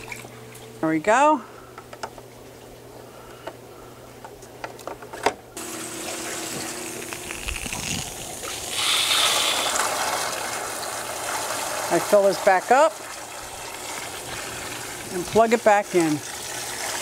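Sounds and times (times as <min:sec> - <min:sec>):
steady hum: 0:00.0 - 0:10.2
water rushing from hose: 0:05.6 - 0:17.0.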